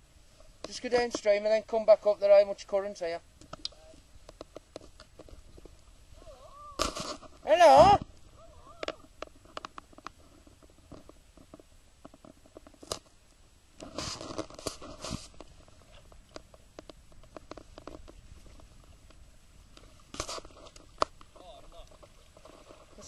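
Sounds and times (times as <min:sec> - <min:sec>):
paddle splashing in water: 0:13.8 - 0:23.0.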